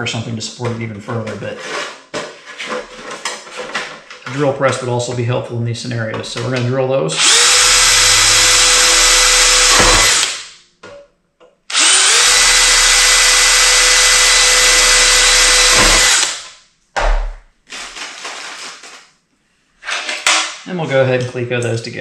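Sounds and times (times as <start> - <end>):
cordless drill boring sheet metal: 7.1 - 10.5, 11.7 - 16.5.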